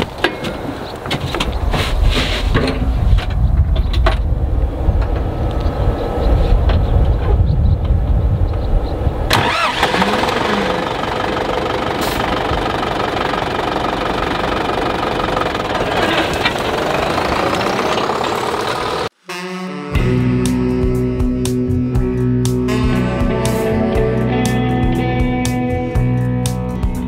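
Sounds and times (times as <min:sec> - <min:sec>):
tractor diesel engine starting: 0:09.3 - 0:19.2.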